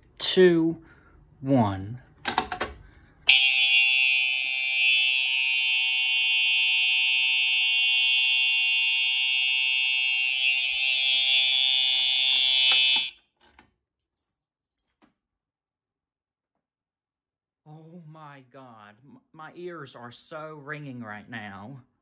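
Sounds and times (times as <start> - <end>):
steady electronic alarm horn: 3.3 - 13.3.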